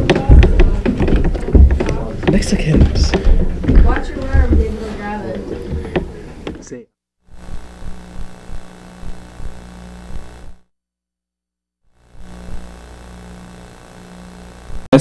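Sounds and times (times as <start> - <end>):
faint knocks: 0.0 - 6.7
electrical hum: 0.0 - 10.7, 11.9 - 15.0.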